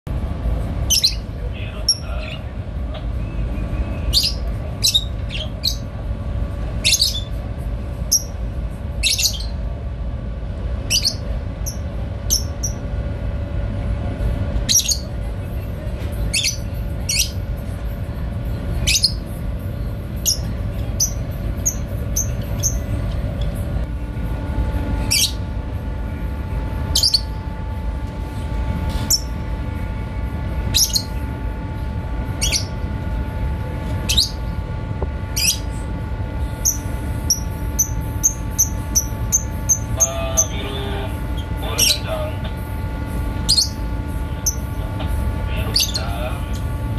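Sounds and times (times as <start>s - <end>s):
low rumble of ship machinery: 0.0s - 46.9s
bird chirps: 10.9s - 12.8s, 26.9s - 27.4s, 30.7s - 31.2s, 32.4s - 32.8s, 34.1s - 34.4s, 43.5s - 43.8s.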